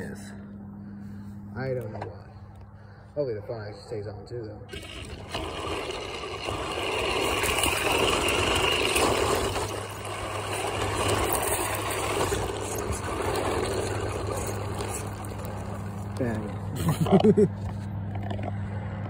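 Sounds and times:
rc truck motor and tyres: 0:04.7 - 0:19.0.

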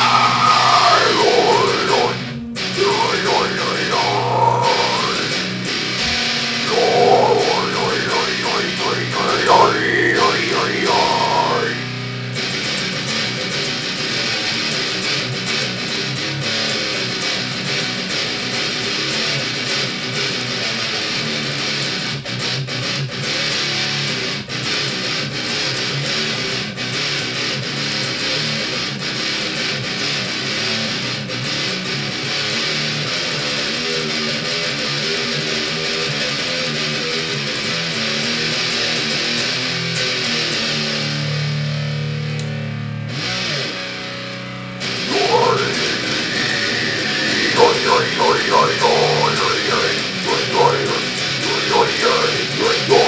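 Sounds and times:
person singing: 0:00.0 - 0:05.5, 0:06.6 - 0:12.0, 0:45.0 - 0:53.0
electric guitar metal riffs: 0:00.0 - 0:17.5, 0:35.1 - 0:53.0.

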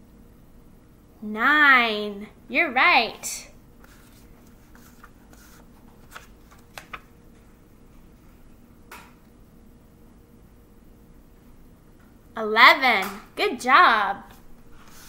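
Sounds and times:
paper rustle: 0:03.8 - 0:07.1, 0:14.7 - 0:15.0
soft clicks of cards: 0:06.0 - 0:07.5.

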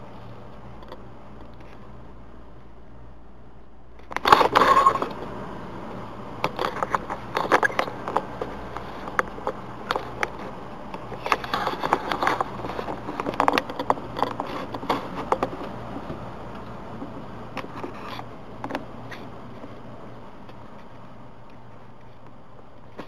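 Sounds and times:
clicks and scrapes on computer case: 0:04.0 - 0:05.2, 0:06.4 - 0:16.2
rustling handling noise: 0:06.4 - 0:23.0.

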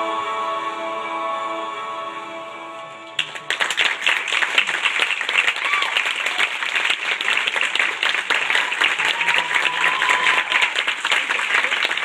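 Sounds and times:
audience applauding: 0:03.2 - 0:12.0
long shout from crowd: 0:05.6 - 0:06.6, 0:08.6 - 0:10.8.

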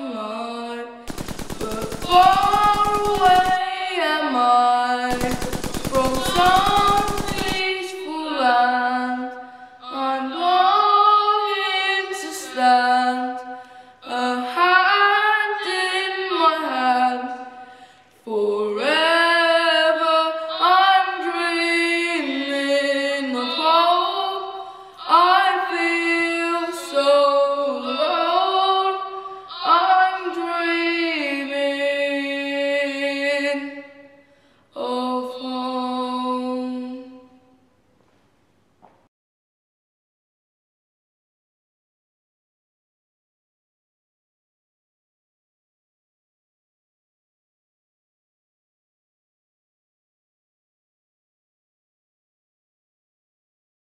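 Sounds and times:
boy singing unaccompanied: 0:00.0 - 0:13.4, 0:18.3 - 0:33.8.

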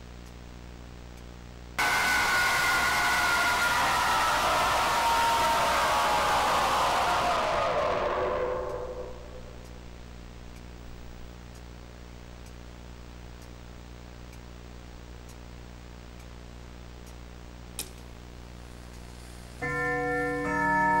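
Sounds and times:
steady low hum: 0:00.0 - 0:20.4
sharp click: 0:17.8 - 0:18.1.

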